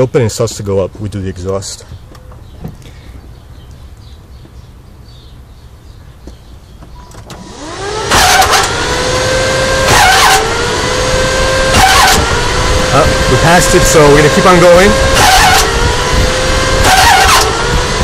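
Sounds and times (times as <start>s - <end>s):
starter motor cranking engine: 7.2s - 18.0s
loud harsh engine bursts: 7.4s - 18.0s.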